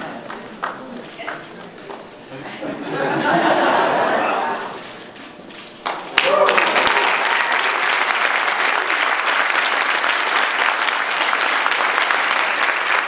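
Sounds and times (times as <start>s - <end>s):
audience applauding: 0.0s - 2.0s, 5.8s - 13.0s.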